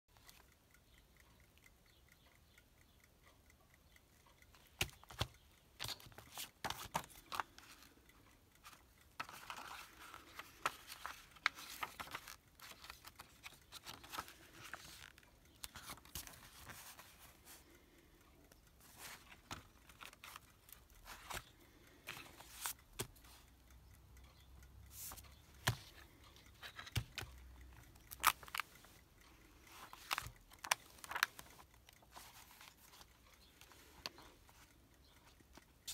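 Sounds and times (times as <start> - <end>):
sharp ticks and taps: 0.1 - 35.9
magazine pages rustling: 6.1 - 7.6, 9.2 - 17.6, 29.7 - 33.1.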